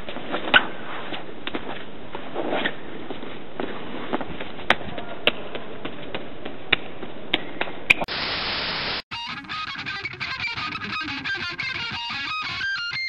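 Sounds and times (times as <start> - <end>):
loud static: 8.0 - 13.0
steady hiss: 8.1 - 9.0
strummed electric guitar music: 9.1 - 13.0.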